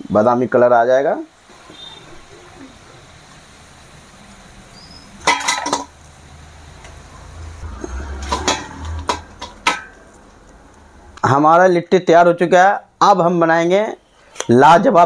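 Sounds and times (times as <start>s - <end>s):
metal kitchenware clinking: 5.2s - 5.9s, 7.8s - 10.1s.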